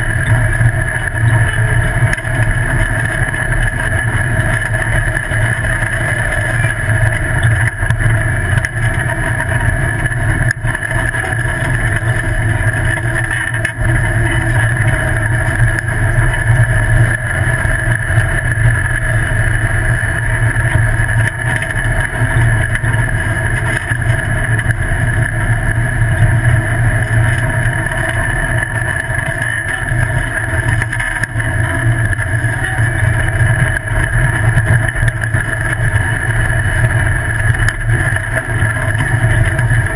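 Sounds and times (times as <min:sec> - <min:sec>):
buggy engine drone: 0:00.0 - 0:39.9
low rumble of wind and ground: 0:00.0 - 0:39.9.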